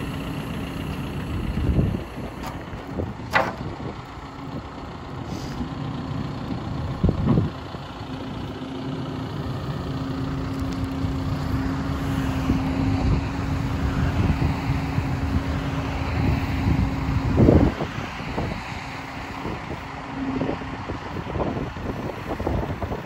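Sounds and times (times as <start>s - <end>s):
backhoe engine and hydraulics: 0.0s - 23.0s
thump: 3.3s - 3.8s.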